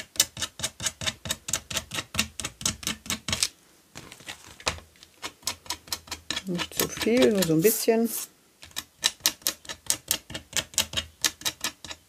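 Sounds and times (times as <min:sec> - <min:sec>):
needle scratching along fabric: 0:05.2 - 0:12.0.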